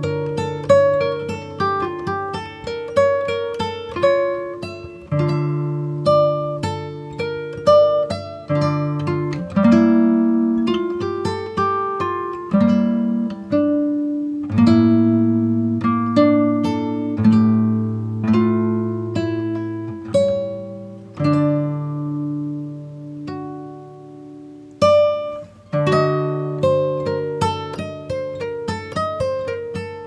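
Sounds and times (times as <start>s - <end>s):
guitar plucking melody: 0.0s - 30.0s.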